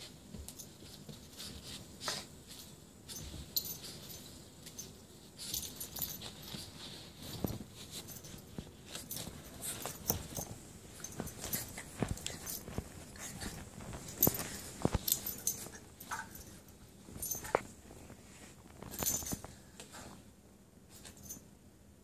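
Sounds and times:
puppy scuffling on carpet: 0:00.0 - 0:20.3
collar jingling: 0:00.3 - 0:17.7.

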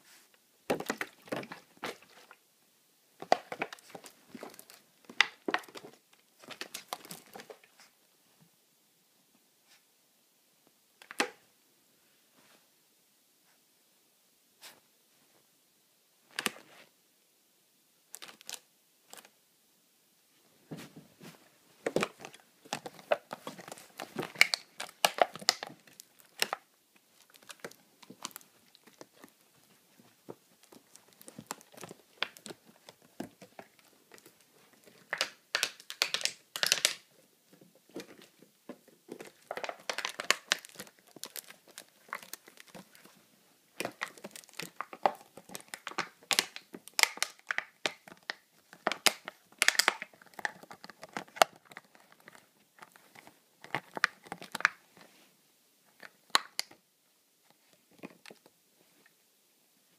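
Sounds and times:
plastic bottle crackling: 0:00.7 - 0:02.4, 0:03.2 - 0:07.7, 0:18.1 - 0:19.3, 0:21.8 - 0:37.1, 0:38.0 - 0:54.8.

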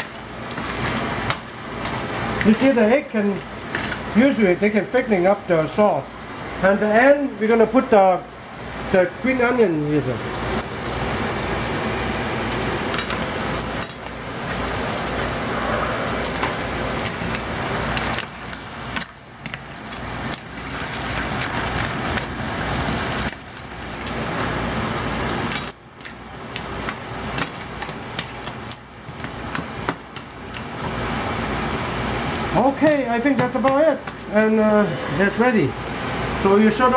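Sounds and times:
sauce sizzling and bubbling: 0:00.0 - 0:05.4, 0:10.0 - 0:32.6.

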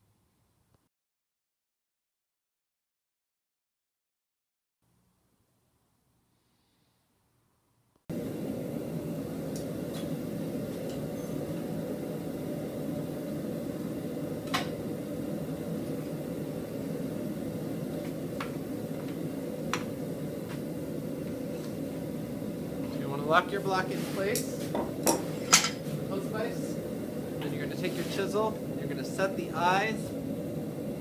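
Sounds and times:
forge running noise: 0:08.1 - 0:31.0.

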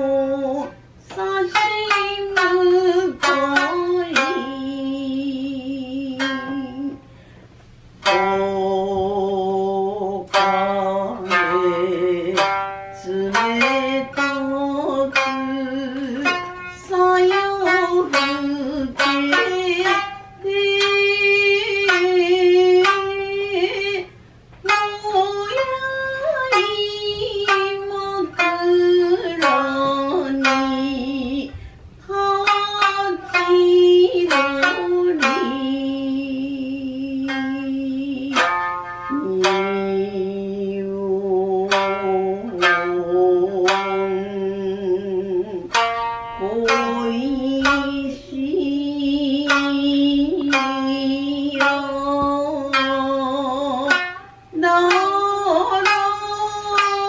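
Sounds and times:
shamisen plucked melody: 0:00.0 - 0:07.0, 0:08.0 - 0:57.0
woman singing: 0:00.0 - 0:07.0, 0:08.1 - 0:57.0.

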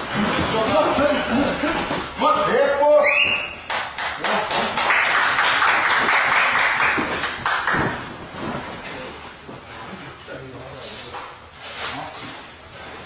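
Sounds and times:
spectators clapping: 0:03.6 - 0:08.1.

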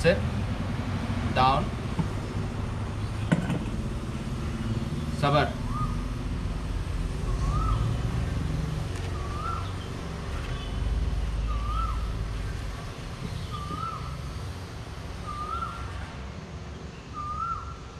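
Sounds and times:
bird calling: 0:05.4 - 0:06.2, 0:07.2 - 0:08.4, 0:09.0 - 0:14.3, 0:15.2 - 0:16.0, 0:17.1 - 0:17.9.

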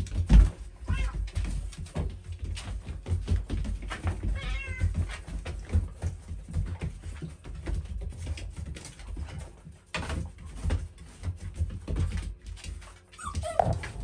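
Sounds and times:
puppy paws scrabbling on hard floor: 0:00.0 - 0:14.0
puppy crying: 0:13.2 - 0:14.0.

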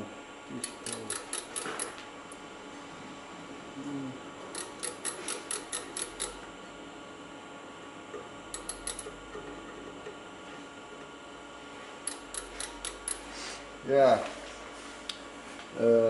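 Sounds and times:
micrometer ratchet clicking: 0:00.5 - 0:02.0, 0:04.5 - 0:06.5, 0:08.1 - 0:09.8, 0:12.0 - 0:13.3.

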